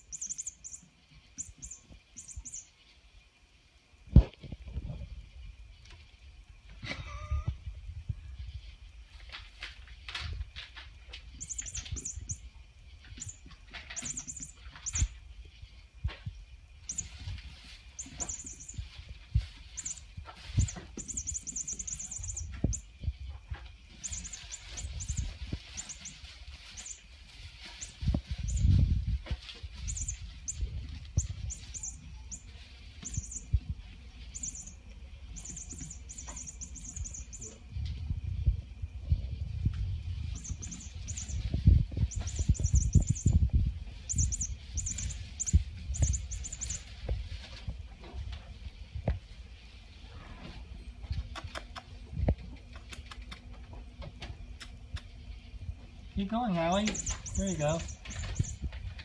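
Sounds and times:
short high-pitched chirps: 0.0s - 0.8s, 1.4s - 2.7s, 11.4s - 12.5s, 14.0s - 15.1s, 16.9s - 17.2s, 18.0s - 18.9s, 19.7s - 22.9s, 24.0s - 27.0s, 27.7s - 28.8s, 29.8s - 33.7s, 34.3s - 37.6s, 40.3s - 43.4s, 44.0s - 46.9s, 56.6s - 58.7s
cat ball toy jingling: 0.1s - 0.8s, 11.4s - 12.4s, 13.2s - 15.1s, 16.8s - 22.9s, 23.9s - 29.0s, 29.7s - 37.6s, 40.2s - 47.0s, 56.6s - 58.7s.

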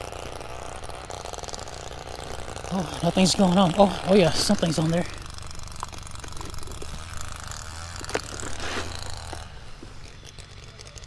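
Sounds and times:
fishing reel clicks and rattle: 0.0s - 11.0s.

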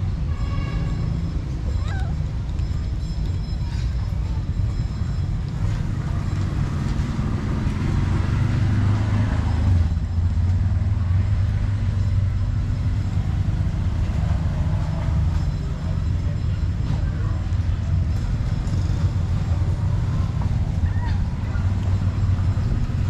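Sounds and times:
traffic rumble: 0.0s - 23.0s.

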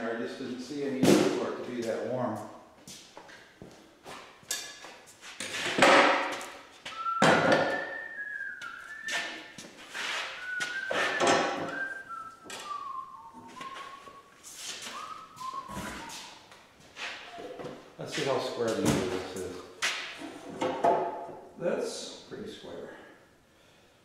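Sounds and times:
man whistling a tune: 6.8s - 16.5s.

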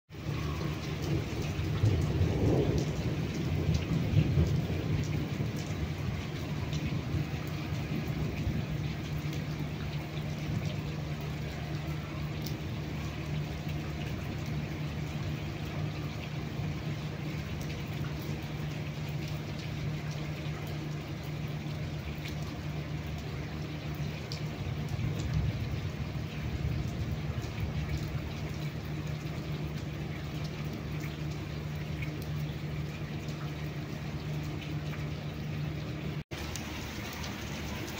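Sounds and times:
heavy rain splashing into water: 0.1s - 37.9s.

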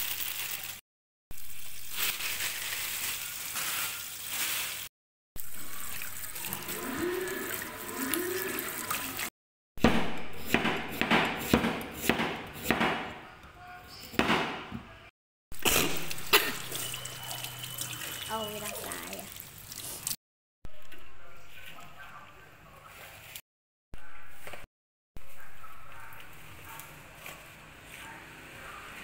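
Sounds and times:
hands rubbing wet leaves: 1.4s - 9.3s, 16.0s - 20.2s
tap water running: 5.4s - 9.3s, 15.6s - 20.2s
cleaver chopping on wooden board: 9.8s - 13.2s, 14.2s - 14.7s.

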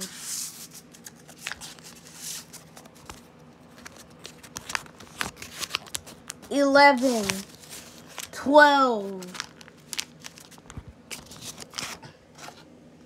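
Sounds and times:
paper folding and creasing: 0.0s - 8.4s, 9.1s - 12.6s
paper swishes: 6.4s - 8.4s.

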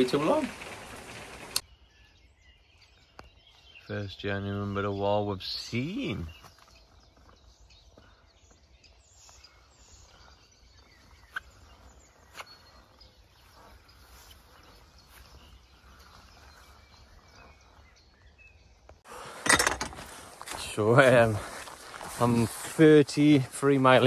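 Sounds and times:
faint bird calls: 6.0s - 18.8s.

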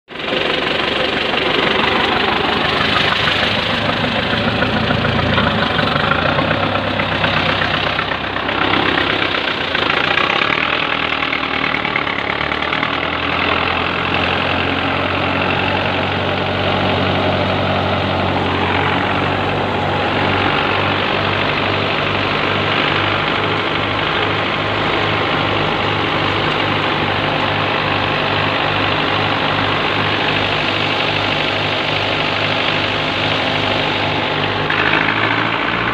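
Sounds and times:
tractor diesel engine drone: 0.0s - 35.9s
thresher rushing whir: 0.1s - 35.9s.

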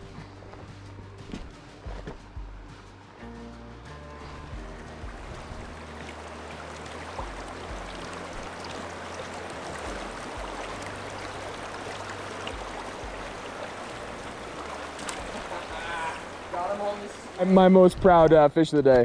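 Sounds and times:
river rushing over rocks: 4.8s - 17.8s.

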